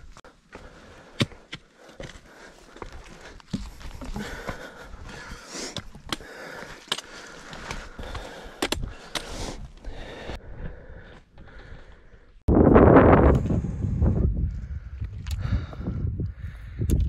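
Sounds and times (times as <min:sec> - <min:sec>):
footsteps on rocky trail: 0:00.0 - 0:12.1
person breathing: 0:00.2 - 0:12.4, 0:13.4 - 0:17.0.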